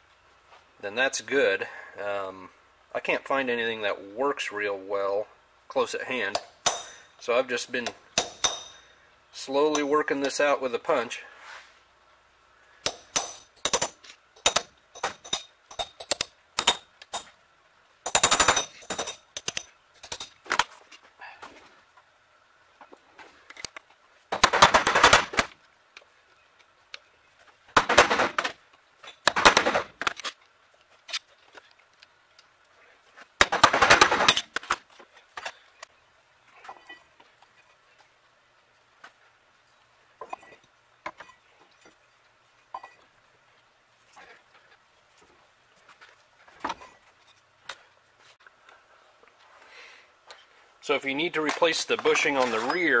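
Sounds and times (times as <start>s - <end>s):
sharp metal clicks and taps: 12.8s - 17.3s, 18.1s - 20.4s.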